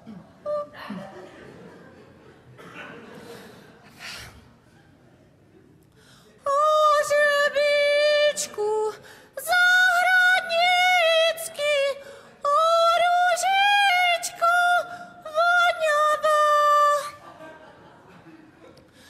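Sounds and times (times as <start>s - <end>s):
singer breathing: 5.9s - 6.4s, 9.0s - 9.4s, 12.0s - 12.4s
woman singing unaccompanied: 6.4s - 17.2s.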